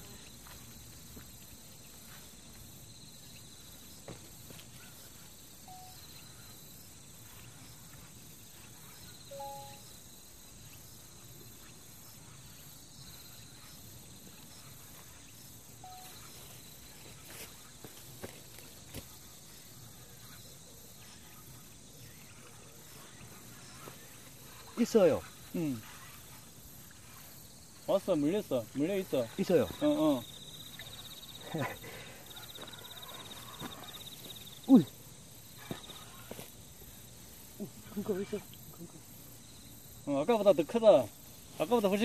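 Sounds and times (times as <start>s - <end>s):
insects chirring: 0.0s - 42.0s
soft single-pitch notes: 9.3s - 9.9s.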